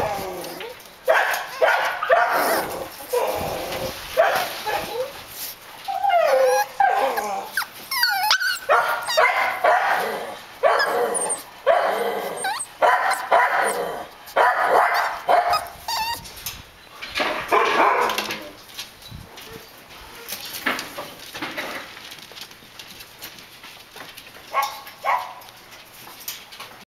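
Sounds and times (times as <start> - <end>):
puppies whining: 0.0 - 0.9, 4.6 - 16.6
puppies barking and yipping: 0.0 - 16.4, 24.5 - 25.5.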